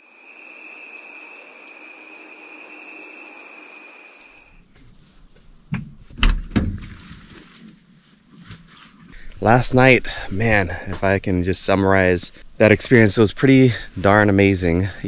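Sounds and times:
insects trilling: 0:00.0 - 0:15.0
dull thumps: 0:04.7 - 0:07.5.

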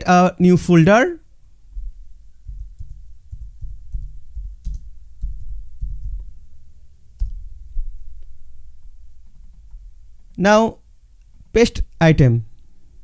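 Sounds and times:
typing on computer keyboard: 0:02.5 - 0:06.3.

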